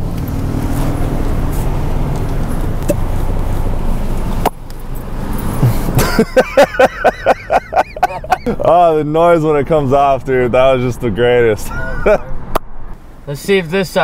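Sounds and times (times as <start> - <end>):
traffic and engine noise: 0.0 - 14.0
rhythmic bursts of laughter: 5.6 - 8.6.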